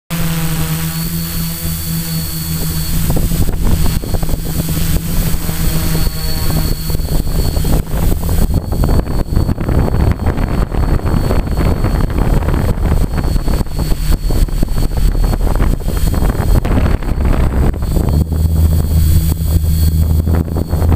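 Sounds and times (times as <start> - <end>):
drone propellers humming: 0.1 - 20.9
high whine: 0.1 - 20.9
wind buffeting microphone: 2.2 - 20.9.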